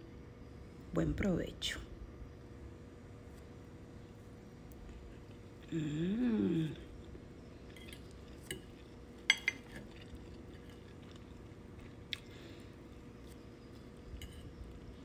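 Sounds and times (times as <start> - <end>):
faint steady hum: 0.0 - 15.0
fork clinking on ceramic plate: 7.8 - 10.0.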